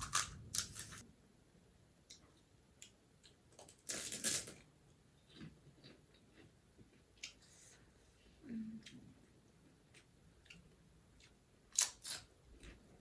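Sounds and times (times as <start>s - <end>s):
soft chewing: 5.2s - 11.4s, 12.5s - 13.0s.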